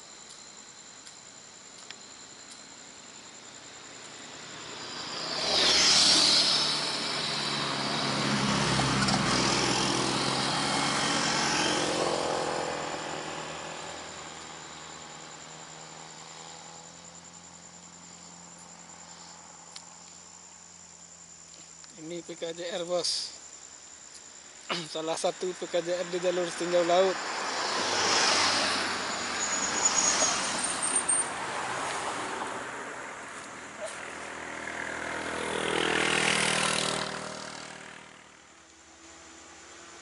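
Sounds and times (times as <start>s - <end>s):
vehicle passing by: 3.6s - 20.8s, 25.6s - 40.0s.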